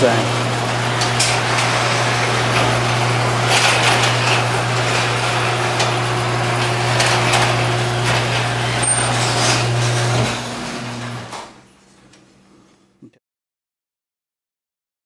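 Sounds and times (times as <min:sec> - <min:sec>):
garage door motor hum: 0:00.0 - 0:13.0
garage door rattling: 0:00.2 - 0:12.1.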